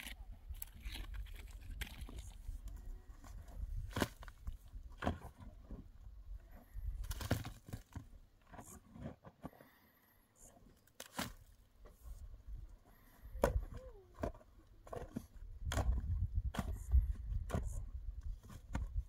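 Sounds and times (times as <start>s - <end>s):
digging tool striking stony earth: 3.7s - 5.9s, 7.0s - 9.4s, 10.9s - 11.6s, 13.4s - 19.0s.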